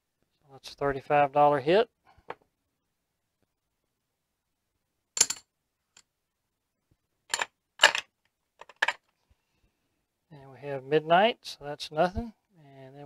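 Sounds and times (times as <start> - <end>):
casino chips clacking: 5.2 - 5.4, 7.3 - 8.0, 8.6 - 9.0.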